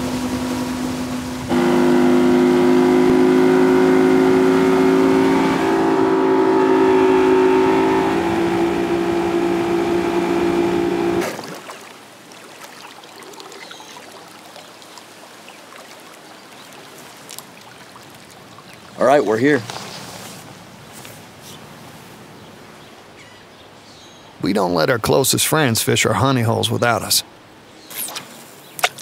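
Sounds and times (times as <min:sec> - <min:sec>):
motorboat engine drone: 0:00.0 - 0:11.4
faint outdoor hiss: 0:11.3 - 0:29.0.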